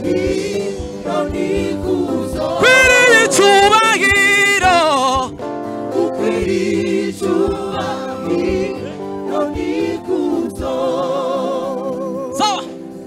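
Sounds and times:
person singing with vibrato: 0.0s - 5.4s
held chords: 0.0s - 11.7s
gospel worship music: 0.0s - 13.0s.

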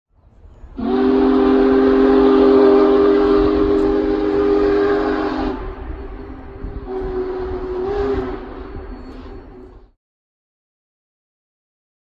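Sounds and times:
steam whistle blast: 0.7s - 9.8s.

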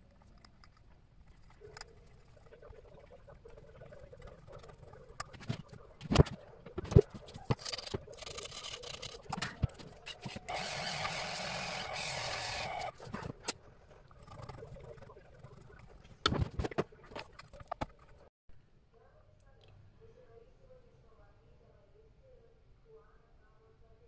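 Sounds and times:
lathe motor whirring: 10.2s - 12.9s.

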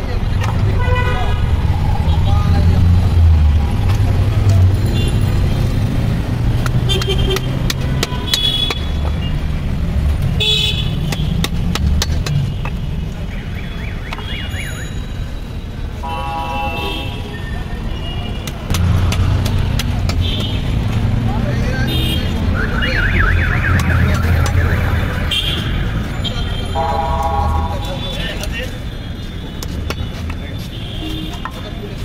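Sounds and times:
traffic engines rumbling: 0.0s - 32.0s
vehicle horn honks: 16.0s - 17.4s, 26.6s - 28.2s.

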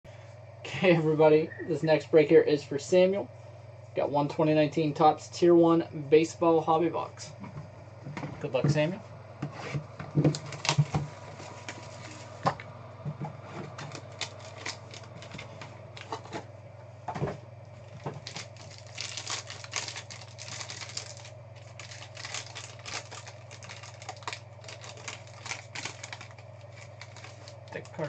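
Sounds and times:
low hum: 0.1s - 28.0s
foil pack crinkling and tearing: 10.1s - 12.5s, 13.7s - 16.3s, 17.8s - 28.0s.

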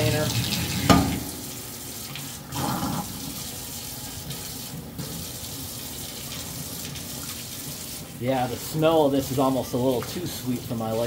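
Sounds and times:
water splashing off plate: 0.0s - 5.3s
faucet running into steel sink: 0.0s - 11.0s.

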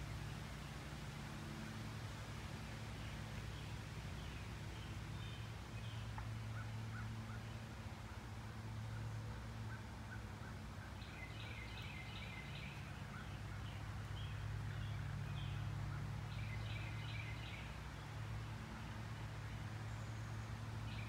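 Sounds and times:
birds chirping: 8.9s - 21.0s.

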